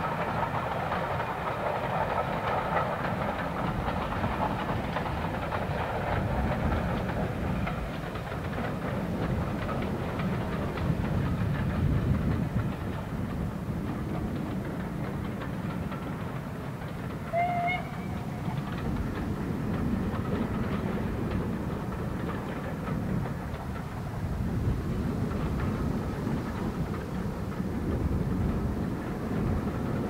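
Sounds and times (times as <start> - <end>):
steam locomotive rumble: 0.0 - 30.0
train whistle toot: 17.3 - 18.2.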